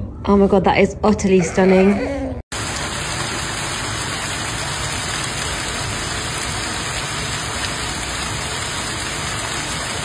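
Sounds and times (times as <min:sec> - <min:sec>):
hail and rain falling: 0:02.5 - 0:10.0.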